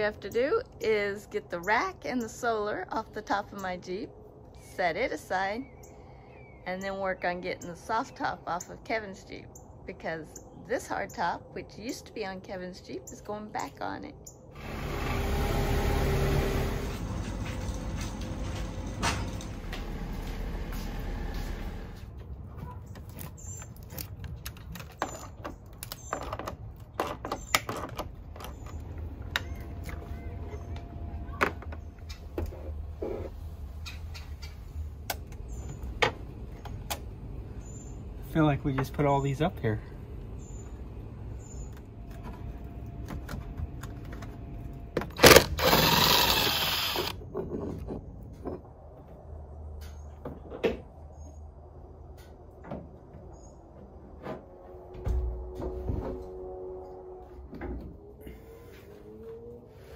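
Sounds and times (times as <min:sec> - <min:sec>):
cordless drill whirring: 0:45.2 - 0:47.2.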